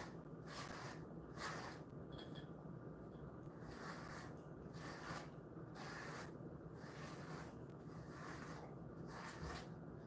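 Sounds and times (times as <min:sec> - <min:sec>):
brush swishing through dog fur: 0:03.7 - 0:09.8.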